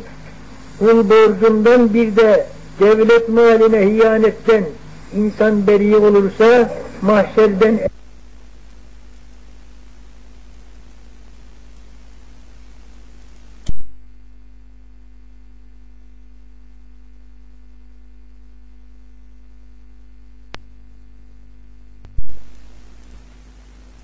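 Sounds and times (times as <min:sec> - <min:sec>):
recording hiss: 0:00.0 - 0:14.0, 0:20.4 - 0:24.0
electrical hum: 0:00.0 - 0:24.0
loud sharp clicks: 0:13.2 - 0:13.9.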